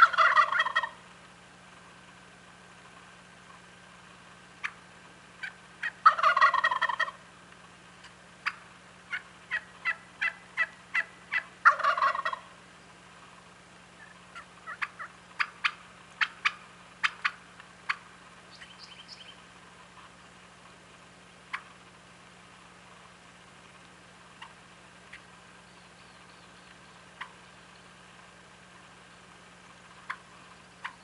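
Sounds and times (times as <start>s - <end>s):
short sharp turkey calls: 0.0s - 1.1s, 2.8s - 7.3s, 8.0s - 13.0s, 13.9s - 20.4s, 21.4s - 21.9s, 24.3s - 31.0s
turkey gobbling: 0.0s - 1.1s, 4.6s - 7.3s, 8.0s - 12.6s, 13.9s - 20.2s, 21.5s - 21.8s, 24.3s - 25.4s, 26.1s - 27.6s, 29.8s - 31.0s.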